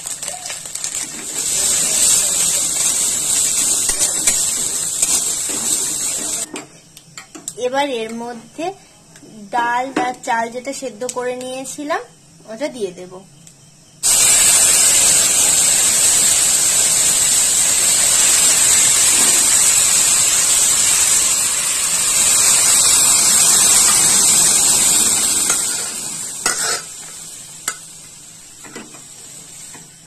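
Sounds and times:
food sizzling in hot oil: 0:00.0 - 0:06.5, 0:14.0 - 0:30.0.

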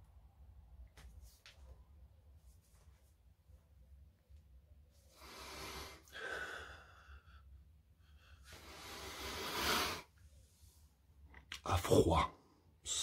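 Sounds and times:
man breathing heavily: 0:05.1 - 0:10.1.

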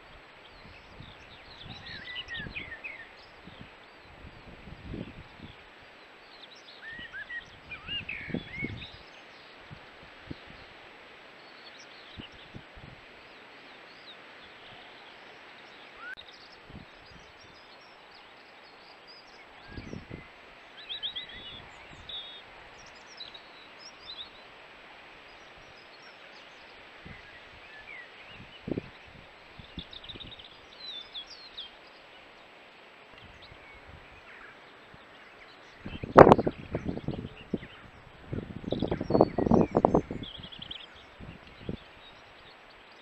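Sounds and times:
steady background hiss: 0:00.0 - 0:43.0.

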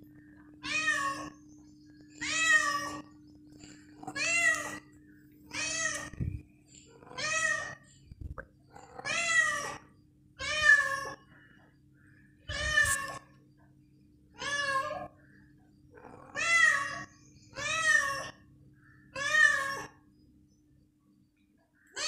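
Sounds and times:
cat meowing: 0:00.6 - 0:01.4, 0:12.5 - 0:13.2.

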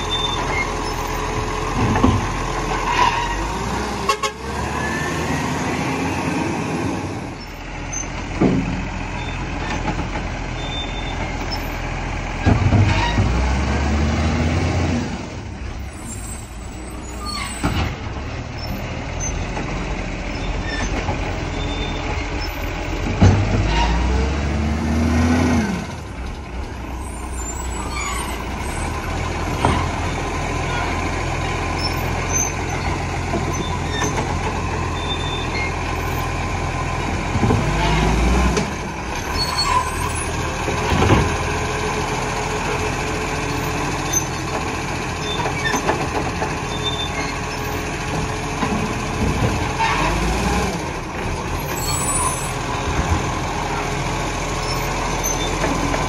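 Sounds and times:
garbage truck engine running: 0:15.1 - 0:56.0.

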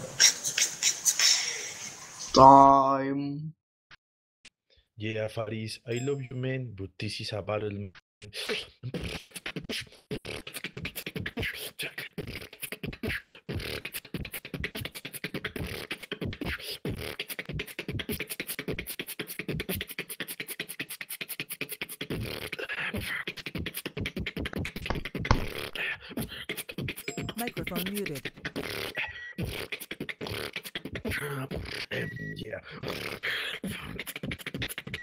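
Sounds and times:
person beatboxing: 0:08.2 - 0:35.0.

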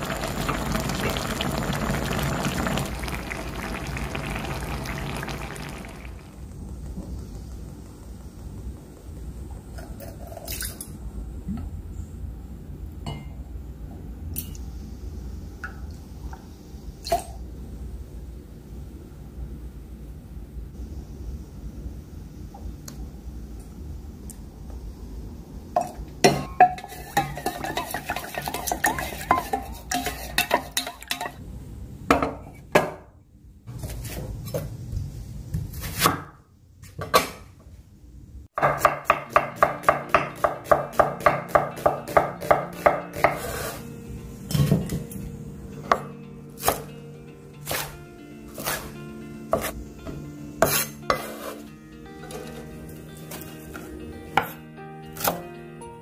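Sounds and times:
dishes and utensils clinking: 0:25.8 - 0:31.4, 0:44.5 - 0:45.1, 0:50.6 - 0:54.6.

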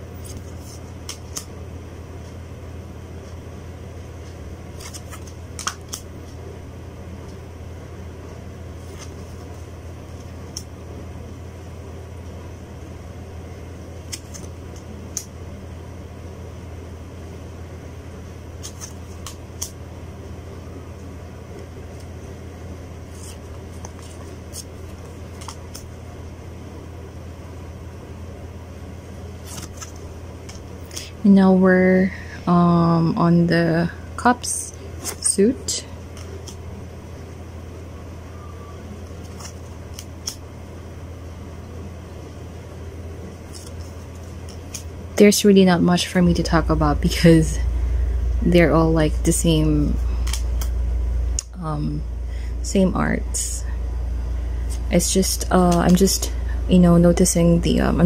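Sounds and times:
low background hum: 0:00.0 - 0:58.0
cards clicking and sliding: 0:00.2 - 0:01.6, 0:04.2 - 0:06.4, 0:08.8 - 0:10.7, 0:14.0 - 0:15.3, 0:18.6 - 0:19.8, 0:23.1 - 0:26.0, 0:29.3 - 0:31.1, 0:36.0 - 0:36.7, 0:39.0 - 0:40.4, 0:43.4 - 0:45.0, 0:50.2 - 0:50.8.

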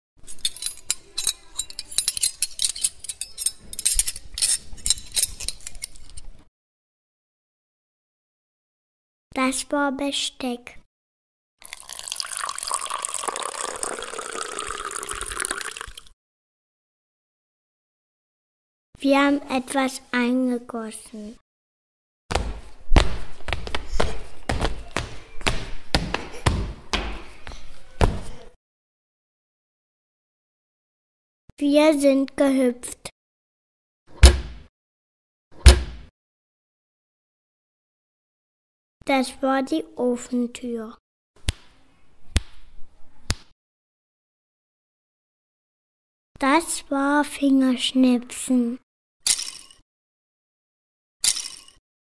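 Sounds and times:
metal cutlery clattering: 0:00.2 - 0:06.3, 0:51.3 - 0:51.8.

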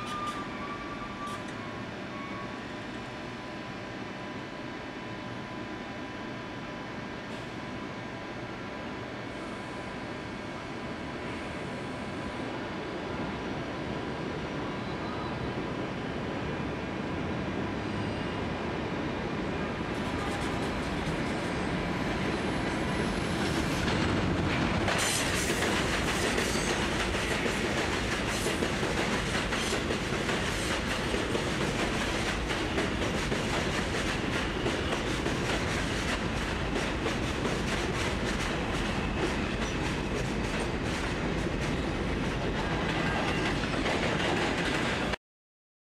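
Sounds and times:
train rumbling past: 0:13.1 - 0:45.2
wheels clacking over rail joints: 0:36.8 - 0:45.2.

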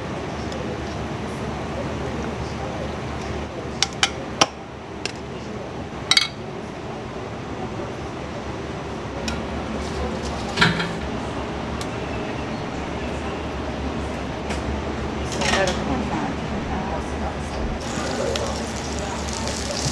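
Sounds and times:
background kitchen noise: 0:00.0 - 0:16.2, 0:17.8 - 0:19.9
utensils clinking on dishes: 0:06.1 - 0:06.4.

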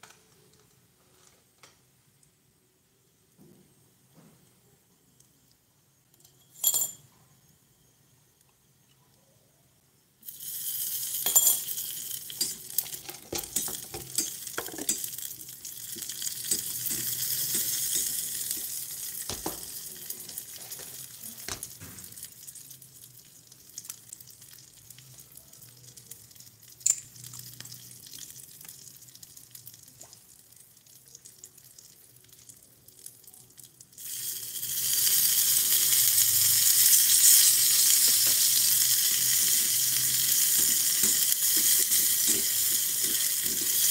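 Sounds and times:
hot oil sizzling in a pot: 0:10.2 - 0:43.9.

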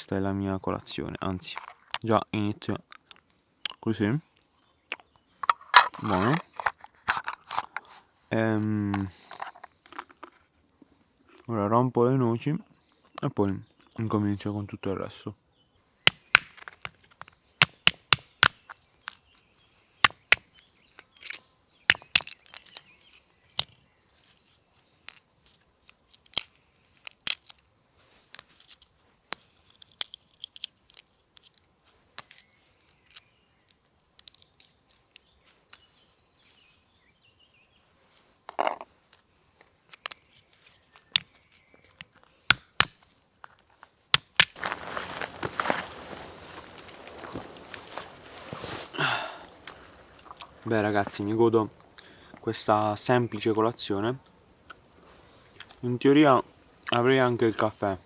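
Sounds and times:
dull crunch: 0:04.9 - 0:11.4, 0:38.1 - 0:52.5
walnut shells cracking: 0:16.1 - 0:19.4, 0:20.0 - 0:23.8, 0:24.4 - 0:27.7, 0:28.3 - 0:36.7, 0:38.5 - 0:44.7
shell fragments crinkling: 0:20.6 - 0:23.8, 0:25.0 - 0:27.7, 0:28.3 - 0:36.7.

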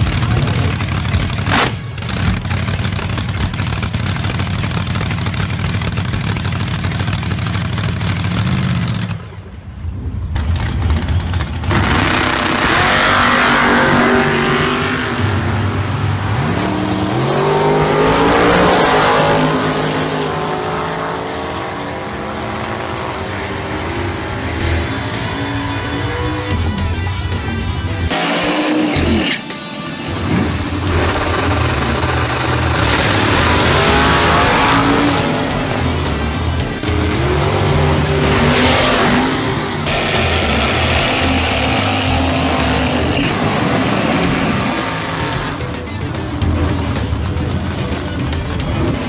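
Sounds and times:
race car engine accelerating: 0:10.4 - 0:27.0, 0:30.1 - 0:49.0.

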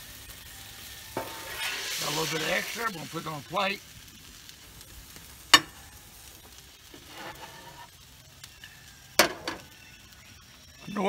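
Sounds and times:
faint griddle sizzle: 0:00.0 - 0:11.0
spatula scraping griddle: 0:01.1 - 0:03.3, 0:06.8 - 0:08.0.

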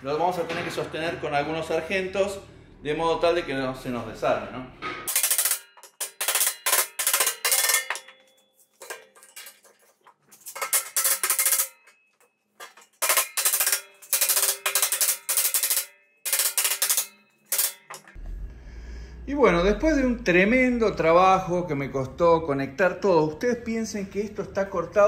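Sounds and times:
steel plates clattering: 0:04.8 - 0:18.2.

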